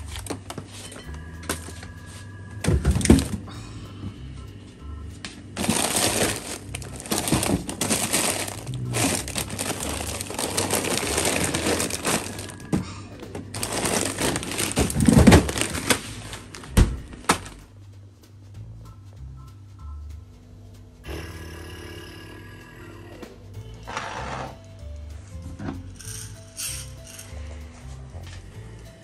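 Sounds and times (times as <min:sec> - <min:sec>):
plastic bags crinkling: 0:00.0 - 0:00.8, 0:05.6 - 0:17.6.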